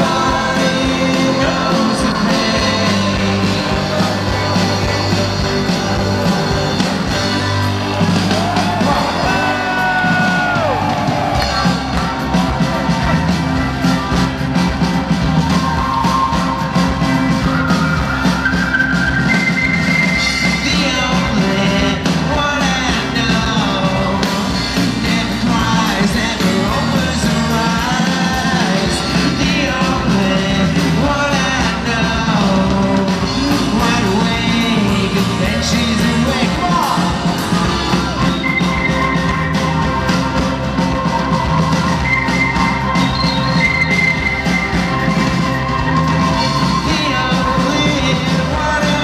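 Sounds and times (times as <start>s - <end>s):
man singing: 0.0s - 10.9s, 20.2s - 38.4s, 46.6s - 49.0s
live rock band: 0.0s - 49.0s.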